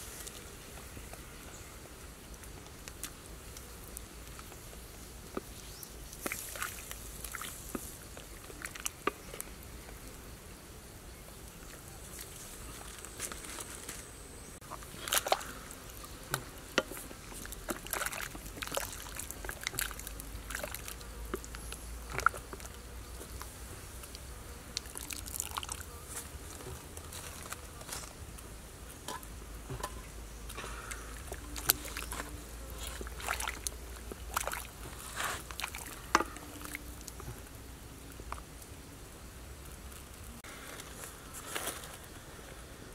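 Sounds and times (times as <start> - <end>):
water sloshing and dripping: 6.2 - 9.0, 14.7 - 15.5, 17.3 - 21.0, 30.5 - 37.2.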